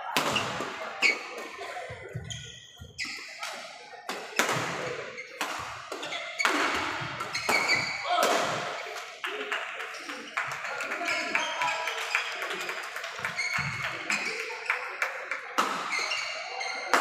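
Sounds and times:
rackets hitting shuttlecock: 0:00.1 - 0:01.6, 0:03.0 - 0:09.1
shoe squeaks on wooden court: 0:00.3 - 0:03.7, 0:04.8 - 0:08.1, 0:09.9 - 0:12.4, 0:13.2 - 0:15.1, 0:15.8 - 0:17.0.

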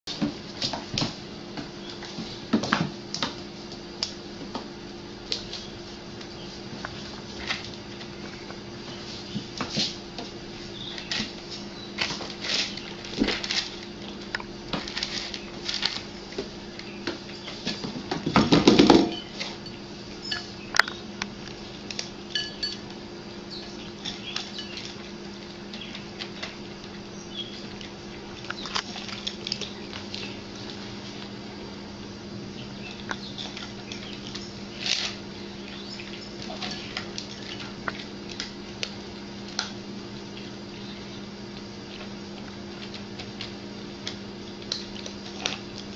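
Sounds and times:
steady low hum: 0:00.1 - 0:45.9
dishes and cutlery clattering: 0:22.3 - 0:22.8.

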